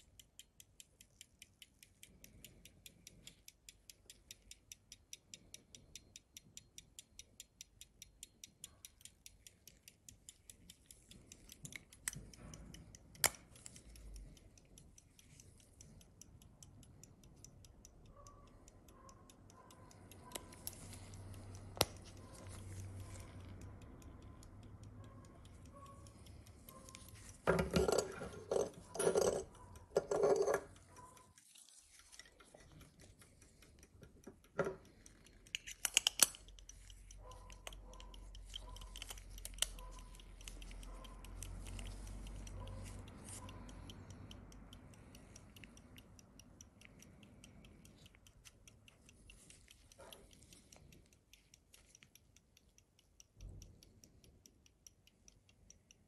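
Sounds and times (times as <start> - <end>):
fingers clicking on watch case: 0.0 - 56.0
pocket watch ticking: 0.0 - 56.0.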